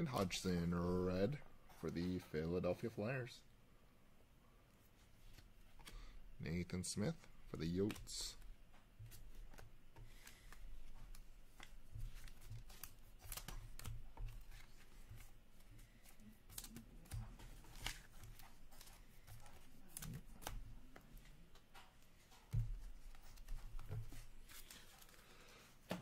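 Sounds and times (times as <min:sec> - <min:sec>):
cards clicking: 0:07.2 - 0:08.5, 0:09.1 - 0:26.0.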